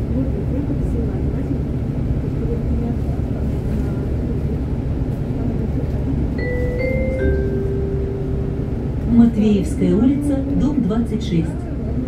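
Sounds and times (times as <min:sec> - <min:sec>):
bus engine rumbling: 0:00.0 - 0:12.0
bus announcement chime: 0:06.3 - 0:11.5.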